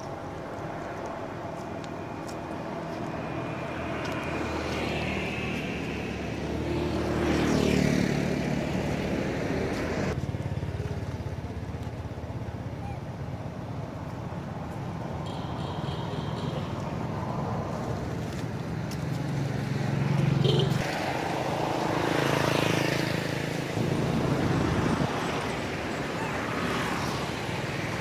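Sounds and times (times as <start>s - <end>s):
steady engine hum: 0.0s - 28.0s
vehicle engine passing by: 3.0s - 11.2s, 19.3s - 28.0s.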